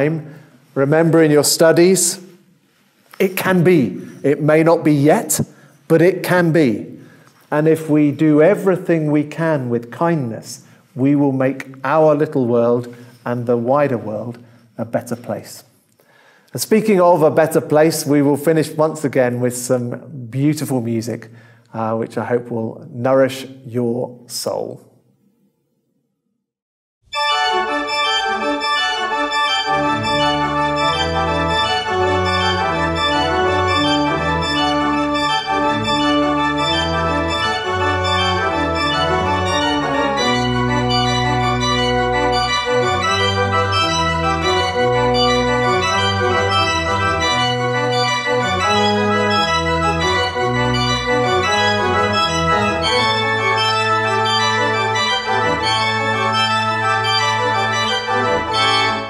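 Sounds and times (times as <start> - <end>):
church organ playing chords: 0.0 - 9.8, 27.1 - 59.0.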